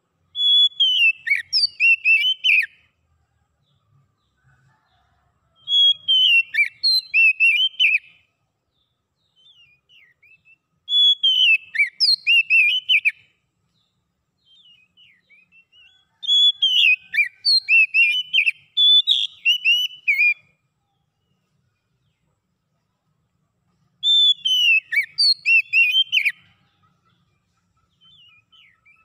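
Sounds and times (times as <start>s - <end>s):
bird singing whistled notes: 0.2s - 2.9s, 5.6s - 22.2s, 23.9s - 26.7s, 27.9s - 29.0s.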